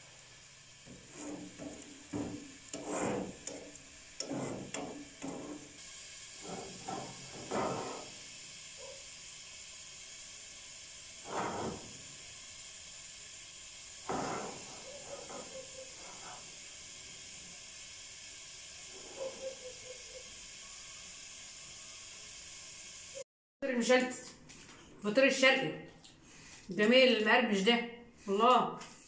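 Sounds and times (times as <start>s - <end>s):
steady hiss: 0.0s - 23.2s
metal rod scraping baking pans: 0.9s - 5.7s, 6.4s - 8.1s, 11.3s - 11.9s, 14.1s - 16.4s
pans dragged on metal floor: 0.9s - 5.8s, 6.4s - 8.2s, 11.2s - 12.0s, 14.0s - 16.5s.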